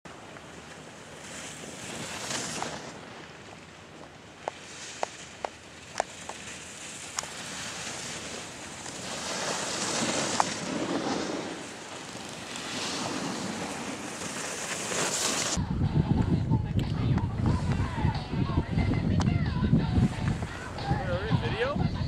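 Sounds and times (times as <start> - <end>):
skis scraping over packed snow: 0.1 - 15.6
wind on microphone: 15.3 - 22.0.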